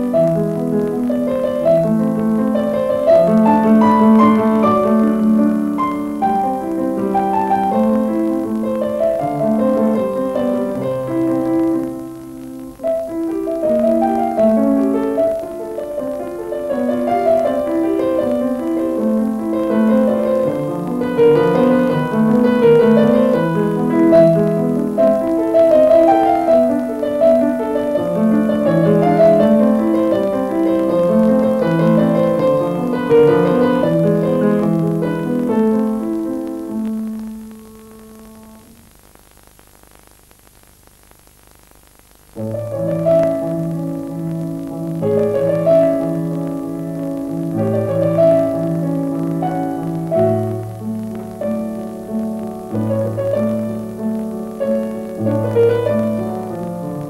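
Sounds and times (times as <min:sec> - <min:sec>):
piano music: 0:00.0 - 0:38.7, 0:42.4 - 0:57.0.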